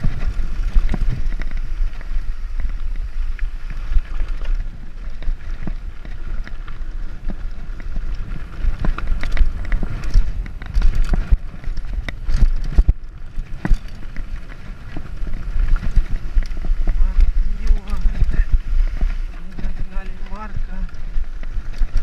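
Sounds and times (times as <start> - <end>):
bike clattering and rattling: 0.0 - 22.0
wind rumbling on microphone: 0.0 - 22.0.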